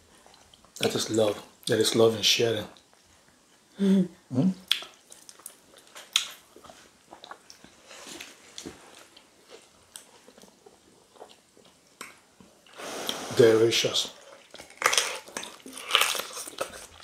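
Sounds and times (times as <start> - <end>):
chewing and wet mouth smacks: 4.6 - 7.8, 14.2 - 17.0.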